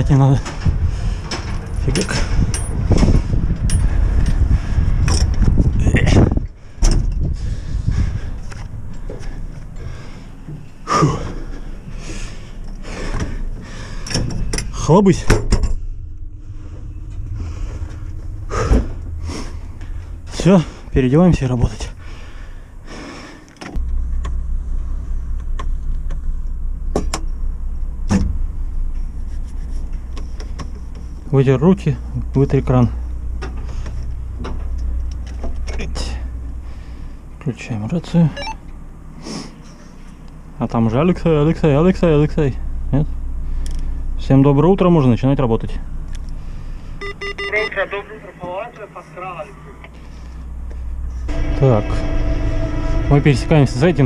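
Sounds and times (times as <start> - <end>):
steady low hum: 0.0 - 54.0
padlock and metal gate clanking: 1.3 - 2.9.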